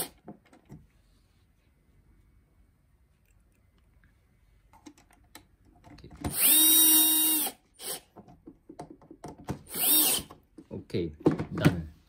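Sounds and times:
cordless drill motor running: 6.3s - 8.0s, 9.7s - 10.3s.

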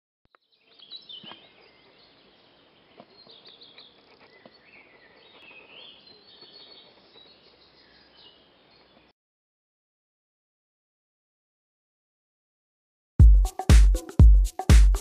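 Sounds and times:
small birds chirping: 0.3s - 9.1s.

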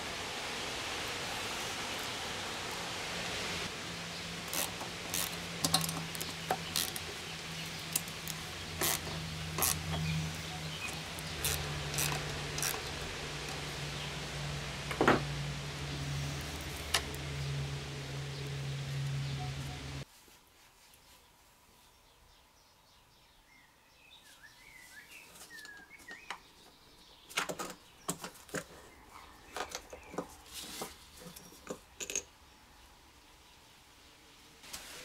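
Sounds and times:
steady low hum: 3.7s - 20.0s.

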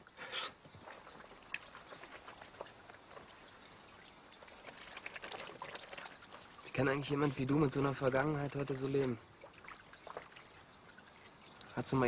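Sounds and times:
water splashing and sloshing: 0.0s - 12.0s.

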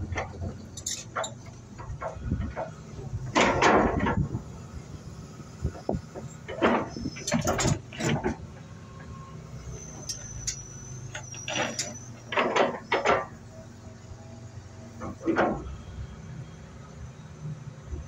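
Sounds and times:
excavator diesel engine running: 0.0s - 18.0s
thin high squeal: 9.6s - 12.9s.

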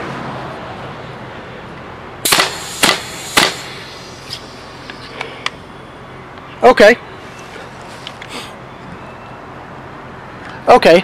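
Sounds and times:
paintball gun gas pops: 2.3s - 5.6s.

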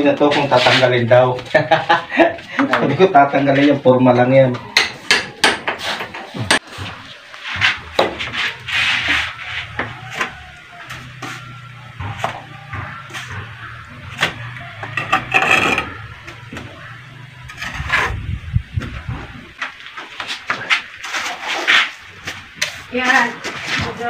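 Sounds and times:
scraping: 5.8s - 24.0s.

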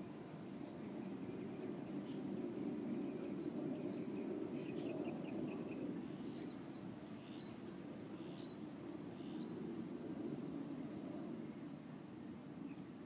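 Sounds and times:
low steady background noise: 0.0s - 13.0s
bird chirping: 3.0s - 9.7s.

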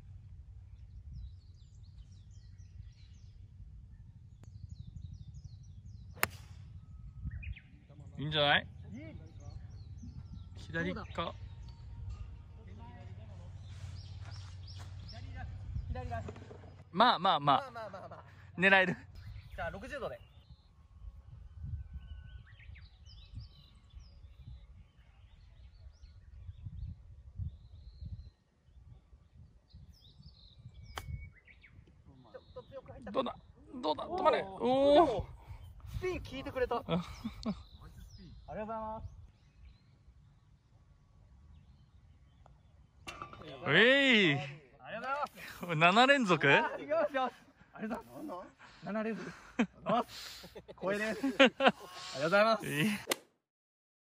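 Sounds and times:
low rumble of outdoor air: 0.0s - 49.6s
small birds chirping: 0.0s - 53.1s
golf club striking ball: 6.1s - 6.7s, 43.0s - 43.7s.

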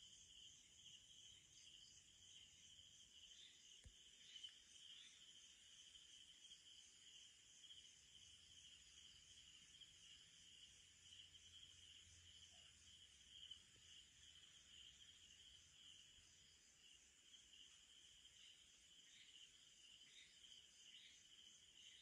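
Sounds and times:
night insects trilling: 0.0s - 22.0s.

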